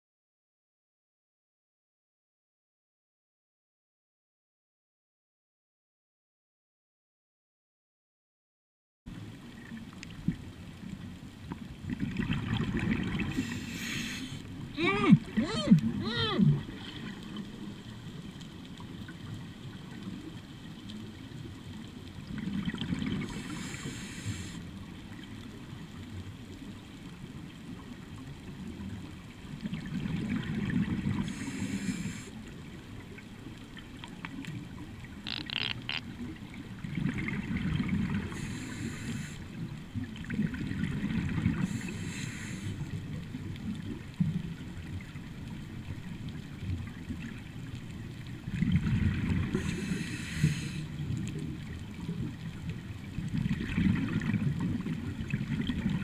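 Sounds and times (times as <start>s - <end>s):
bubbles gurgling with hiss: 11.7s - 26.4s, 27.4s - 56.0s
diver breathing through regulator: 13.3s - 14.5s, 23.3s - 24.6s, 31.2s - 32.4s, 38.3s - 39.5s, 41.6s - 42.8s, 49.5s - 51.0s.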